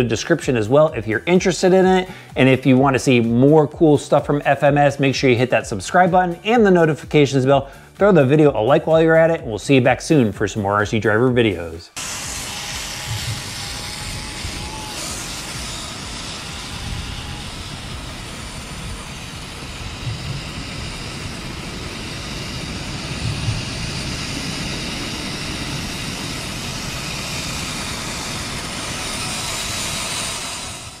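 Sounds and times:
electric motor and gearbox whine: 0.0 - 3.3, 11.9 - 31.0.

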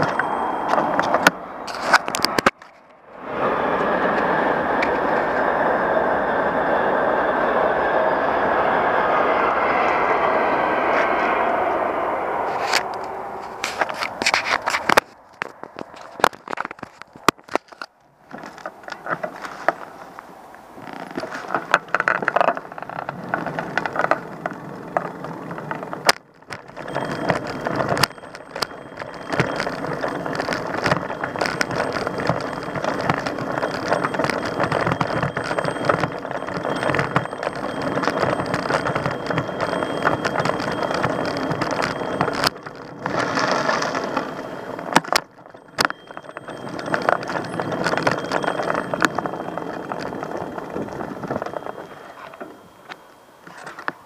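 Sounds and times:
rattling and clattering: 20.8 - 54.0.

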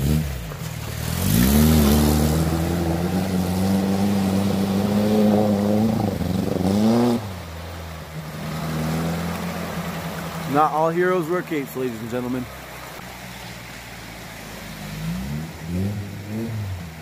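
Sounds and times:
car ploughing through water: 0.0 - 17.0
car engine revving hard: 1.0 - 7.4, 14.8 - 17.0.

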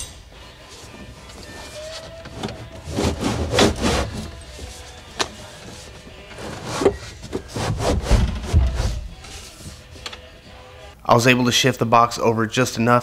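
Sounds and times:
music: 0.0 - 11.7
box scraping against car interior: 2.8 - 4.4, 6.3 - 9.0.

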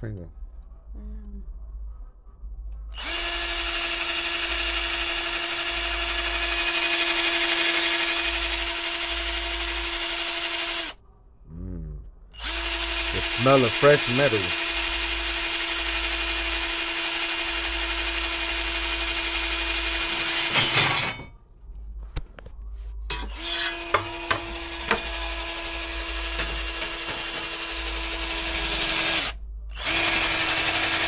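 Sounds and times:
cordless drill boring metal: 3.0 - 11.0, 12.4 - 21.2, 23.1 - 31.0
sharp drill clicks: 3.0 - 11.0, 12.4 - 20.6, 23.4 - 31.0.

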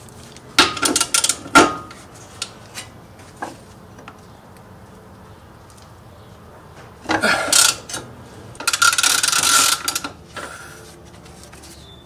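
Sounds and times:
ratchet wrench clicking: 8.6 - 10.1.

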